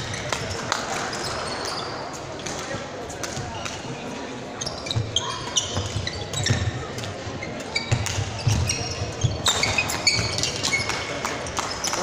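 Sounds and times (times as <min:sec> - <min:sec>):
shoe squeaks on wooden floor: 0:04.6 - 0:11.1.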